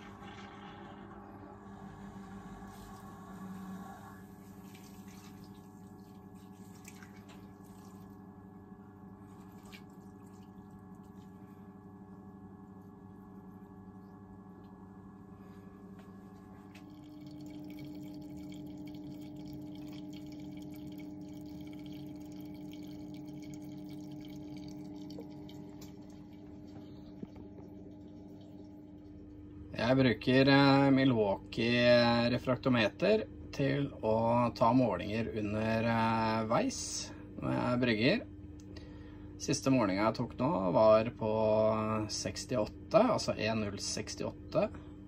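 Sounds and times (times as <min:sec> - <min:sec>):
faint liquid trickling: 0:00.0 - 0:11.9, 0:15.4 - 0:32.9
electric pump hum: 0:00.0 - 0:45.0.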